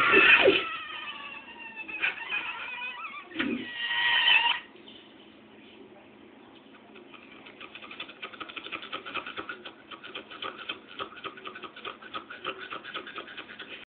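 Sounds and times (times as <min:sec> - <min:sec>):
rapid scratching clicks: 0:07.0 - 0:13.9.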